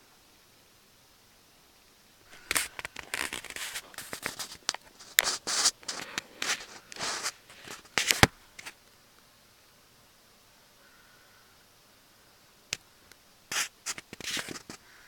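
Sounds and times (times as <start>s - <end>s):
scraping and rustling handling noise: 2.3s - 8.8s, 13.5s - 14.8s.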